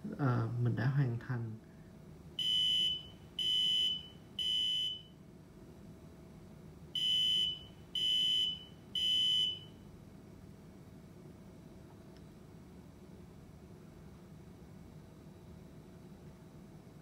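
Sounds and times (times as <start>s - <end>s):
piezo buzzer high beeps: 2.4s - 5.2s, 7.0s - 9.8s.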